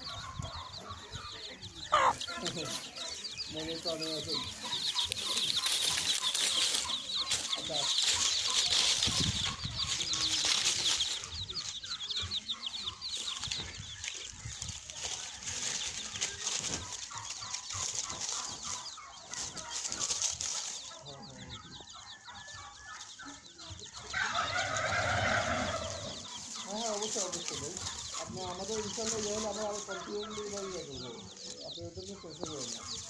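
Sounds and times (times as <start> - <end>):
chicks peeping: 0.0 - 33.0.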